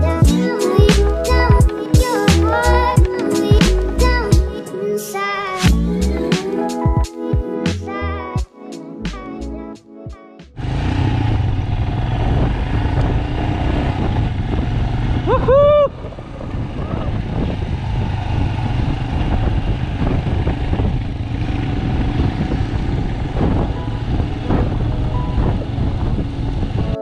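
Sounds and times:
motorcycle engine running: 0:10.6 - 0:27.0
wind noise: 0:10.6 - 0:27.0.

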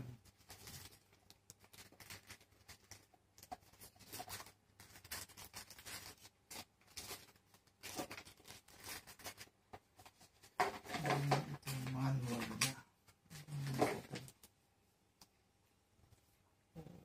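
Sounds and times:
paper and cardboard rustling: 0:00.1 - 0:12.8.

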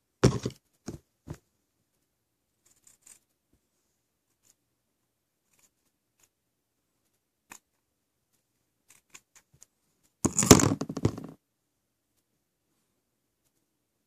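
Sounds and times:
rubbing and knocking on microphone: 0:00.2 - 0:01.5, 0:10.2 - 0:11.4.

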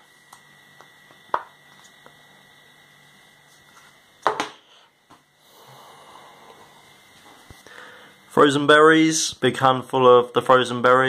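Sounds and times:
blender base knocking on worktop: 0:04.2 - 0:04.6.

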